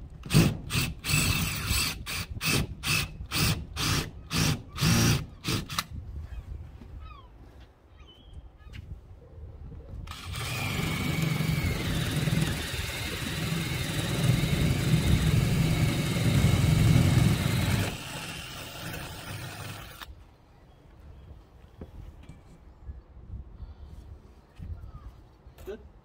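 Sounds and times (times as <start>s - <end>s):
cordless drill boring: 0.3s - 5.8s, 10.1s - 20.1s.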